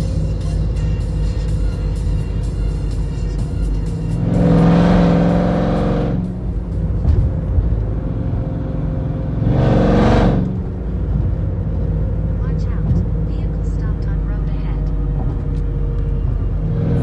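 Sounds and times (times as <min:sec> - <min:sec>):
car engine revving: 0:00.0 - 0:17.0
engine and road drone: 0:00.0 - 0:17.0.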